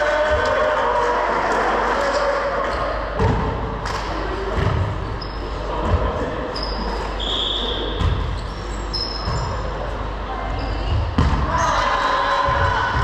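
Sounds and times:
echoing gym hall background: 0.0s - 13.0s
brief high squeaks: 8.4s - 9.6s.

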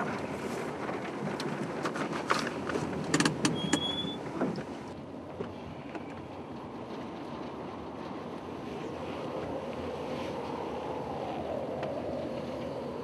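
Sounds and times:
car engine and road rumble: 0.0s - 13.0s
sharp clicks and clunks: 0.9s - 4.7s.

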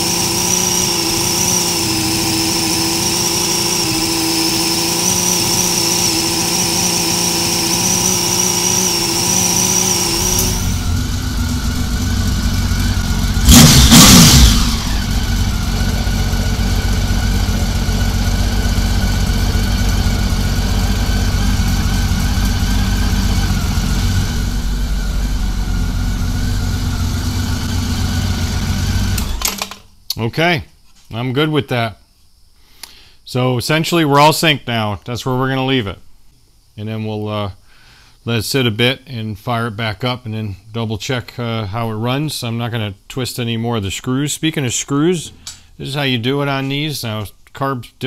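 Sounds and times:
motorcycle engine idling: 0.0s - 29.4s
engine rev: 0.0s - 29.5s.

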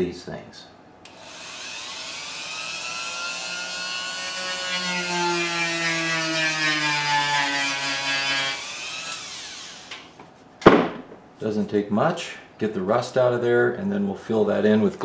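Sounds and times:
rotary tool whine: 1.1s - 5.4s, 8.4s - 10.1s.

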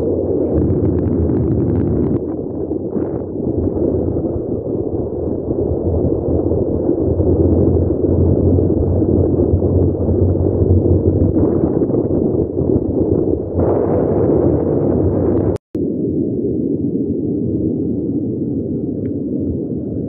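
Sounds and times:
motorcycle engine rumble: 0.0s - 14.4s
wind buffeting microphone: 0.0s - 20.0s.

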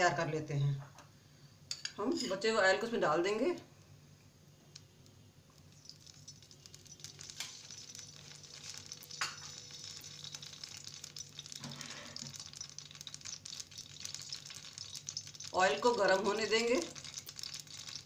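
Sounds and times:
oil popping: 4.8s - 18.0s
oil sizzling in a pan: 5.5s - 18.0s.

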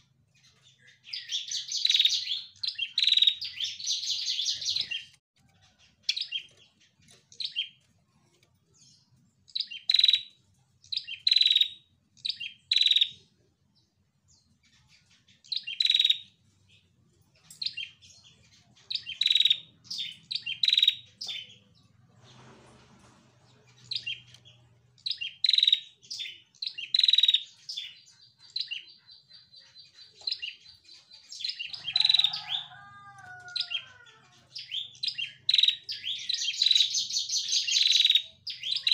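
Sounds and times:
bird sharp high chirps: 0.0s - 5.2s, 9.5s - 13.2s, 14.7s - 16.4s, 17.4s - 21.7s, 23.8s - 38.9s.

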